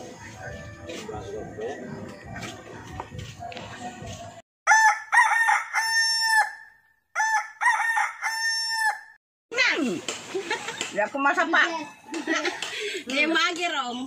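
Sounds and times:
rooster crowing: 0:04.7 - 0:09.2.

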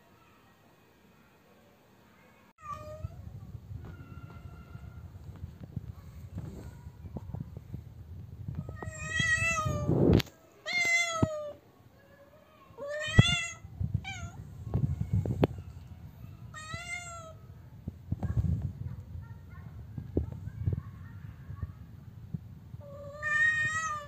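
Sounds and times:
cat meowing: 0:08.7 - 0:09.9, 0:10.6 - 0:11.6, 0:12.8 - 0:14.4, 0:16.5 - 0:17.4, 0:22.8 - 0:24.0.

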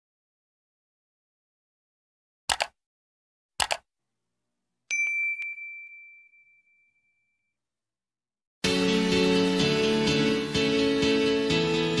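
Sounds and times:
mouse click: 0:02.5 - 0:02.8
bell ding: 0:04.9 - 0:07.5.

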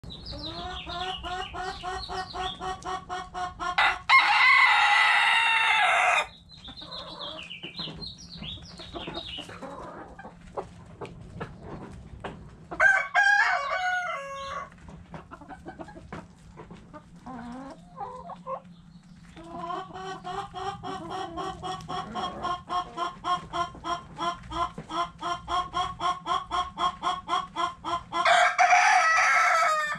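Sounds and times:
chickens clucking: 0:00.0 - 0:29.9
rooster crowing: 0:03.8 - 0:06.3, 0:12.8 - 0:14.7, 0:28.2 - 0:29.9
beaks pecking at grain: 0:06.5 - 0:28.2.

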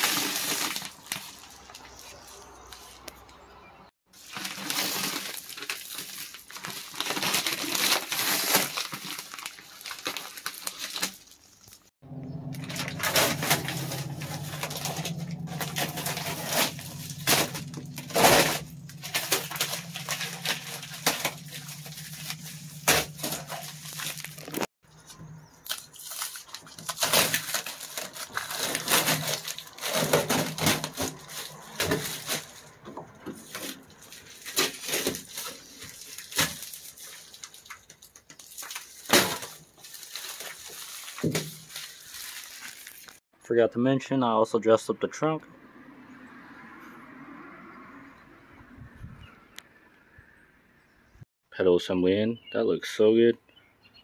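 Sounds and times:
plastic sheeting crinkling: 0:00.0 - 0:03.0, 0:04.1 - 0:11.9, 0:12.5 - 0:24.7, 0:25.6 - 0:43.2
tape being peeled and torn: 0:04.4 - 0:11.9, 0:12.5 - 0:24.7, 0:25.6 - 0:43.2.

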